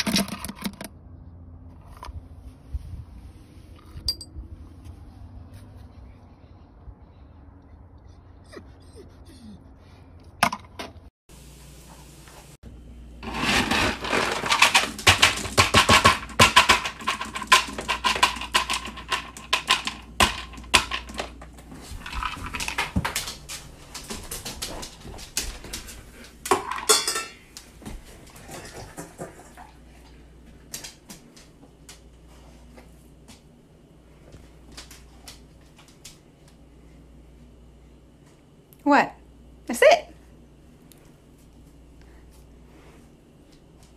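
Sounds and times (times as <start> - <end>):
dry kibble rattling in bin: 13.2 - 23.4
dog eating from metal bowl: 13.3 - 23.4.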